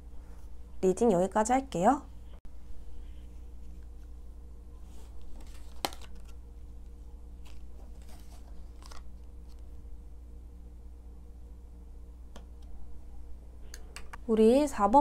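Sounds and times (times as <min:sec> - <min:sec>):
faint steady hum: 0:00.0 - 0:15.0
cards sliding and tapping: 0:05.4 - 0:06.3.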